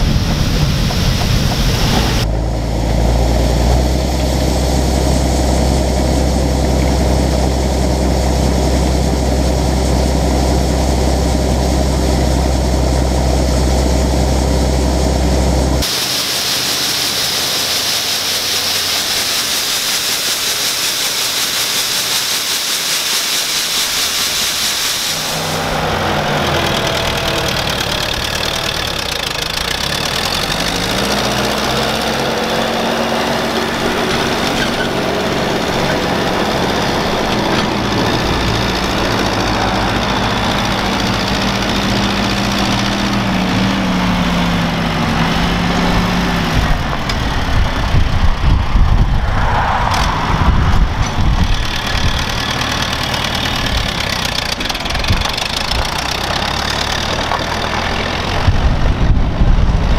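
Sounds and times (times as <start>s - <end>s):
combine harvester humming: 0.0s - 59.9s
tractor engine: 0.0s - 59.9s
grain pouring from auger: 3.4s - 48.0s, 51.4s - 58.8s.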